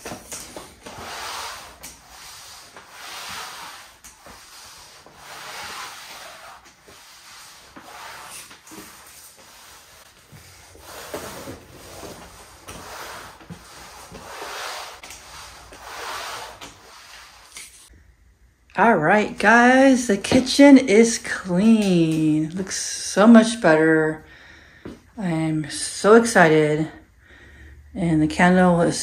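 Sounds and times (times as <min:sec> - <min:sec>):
mop swishing on wooden floor: 0:00.0 - 0:17.9.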